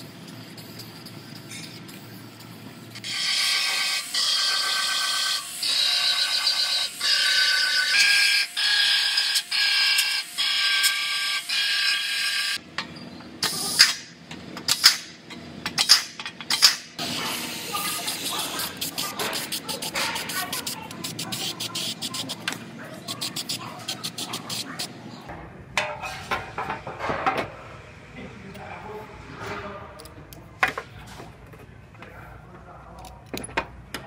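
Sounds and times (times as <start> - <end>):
aerosol spray hissing: 0.0 - 2.6.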